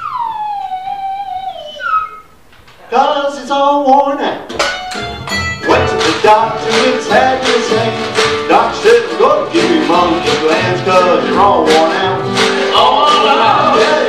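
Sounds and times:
strummed acoustic guitars: 4.5s - 14.0s
sliding lead melody: 4.6s - 14.0s.

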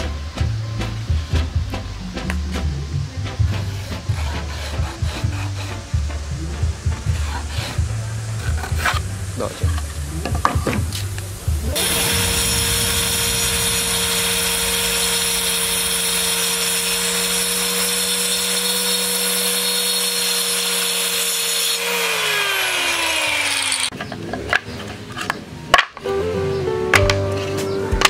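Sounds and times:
circular saw cutting plywood: 3.5s - 9.2s, 11.6s - 24.0s.

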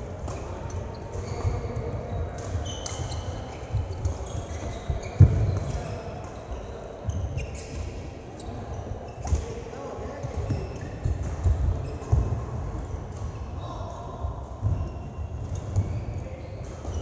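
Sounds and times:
shoes squeaking on court: 0.3s - 12.3s.

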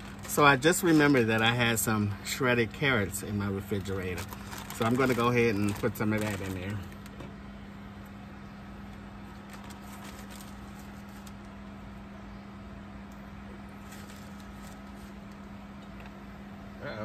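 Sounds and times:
plastic bag rustling: 0.0s - 1.8s, 3.6s - 7.2s, 9.3s - 11.6s, 13.8s - 15.4s
low electrical hum: 0.0s - 17.0s.

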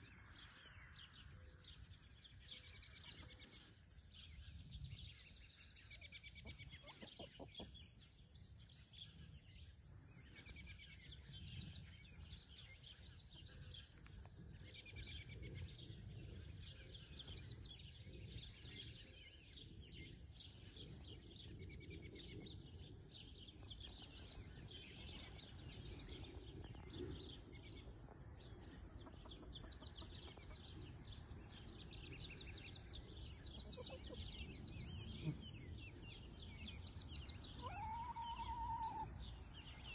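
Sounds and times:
hens chirping and clucking: 6.0s - 8.4s, 20.5s - 39.9s.

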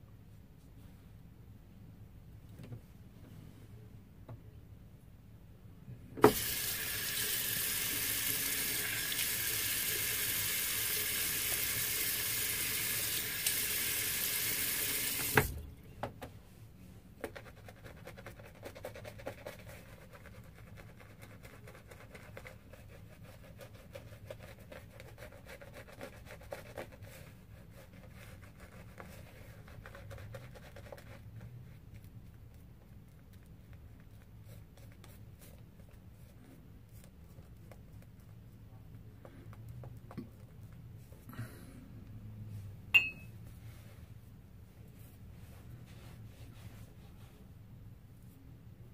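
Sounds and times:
water tap running: 6.2s - 15.6s.

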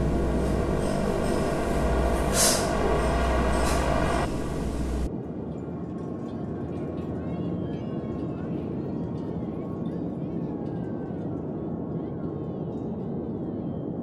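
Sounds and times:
dense rumbling drone: 0.0s - 5.1s
hiss: 0.0s - 5.1s
low hum: 0.0s - 5.1s
steady ringing tones: 0.0s - 5.1s.

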